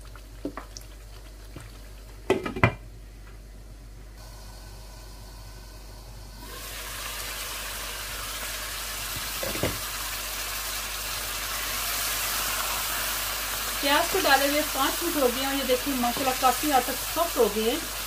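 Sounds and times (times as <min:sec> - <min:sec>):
food sizzling in a pan: 0:04.2 - 0:18.0.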